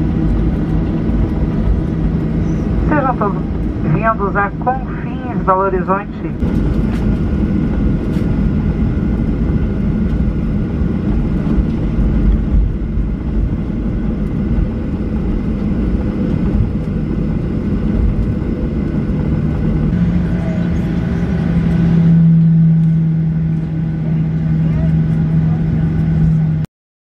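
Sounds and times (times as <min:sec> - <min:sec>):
aircraft engines rumbling: 0:00.0 - 0:26.7
low steady hum: 0:00.0 - 0:26.7.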